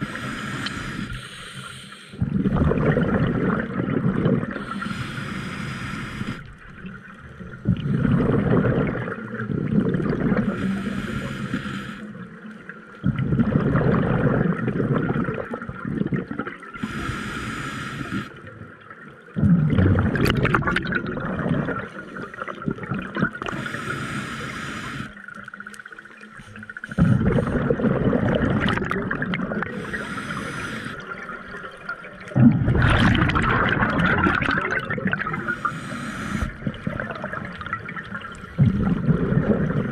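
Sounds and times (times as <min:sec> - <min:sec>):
regulator hissing inhale: 0:00.0 - 0:02.2, 0:04.6 - 0:06.6, 0:10.4 - 0:12.2, 0:16.8 - 0:18.4, 0:23.4 - 0:25.3, 0:29.6 - 0:31.2, 0:35.3 - 0:36.7
gurgling exhaled bubbles: 0:02.1 - 0:05.2, 0:06.2 - 0:11.1, 0:13.0 - 0:16.9, 0:18.1 - 0:25.6, 0:26.6 - 0:39.9.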